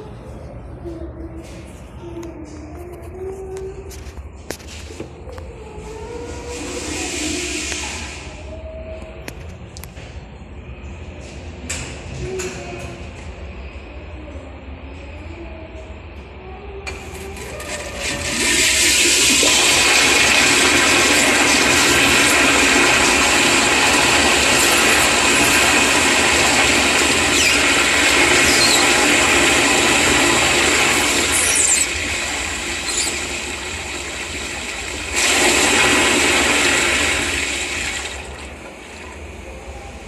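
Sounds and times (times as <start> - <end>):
toilet flushing: 6.4 - 8.5, 16.9 - 40.0.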